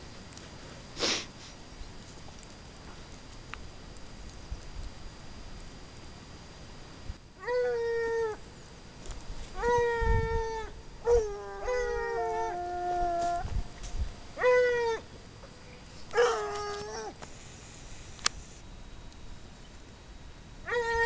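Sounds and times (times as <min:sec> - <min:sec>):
hounds baying: 0:16.1 - 0:17.2.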